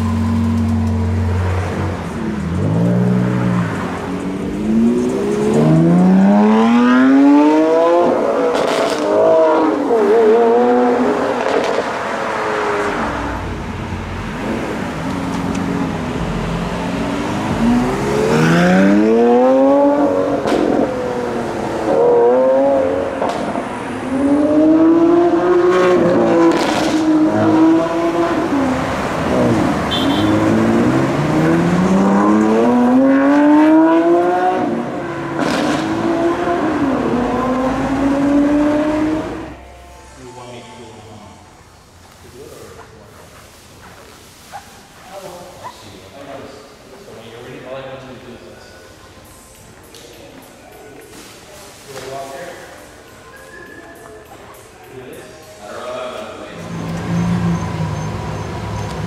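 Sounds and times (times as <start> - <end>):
car engine accelerating hard: 0.0 - 39.5.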